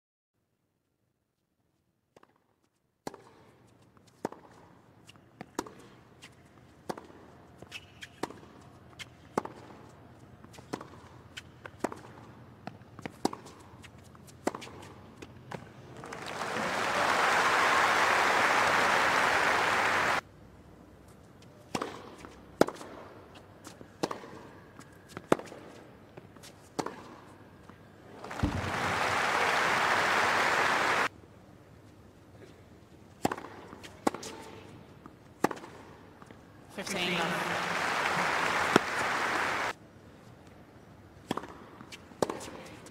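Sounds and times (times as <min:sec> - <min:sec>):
crowd applause: 0:16.0 - 0:20.2, 0:28.2 - 0:31.1, 0:37.1 - 0:39.7
tennis ball struck by racquets: 0:21.7 - 0:23.2, 0:24.0 - 0:24.6, 0:28.3 - 0:28.8, 0:33.2 - 0:34.6, 0:35.3 - 0:36.0, 0:41.2 - 0:42.6.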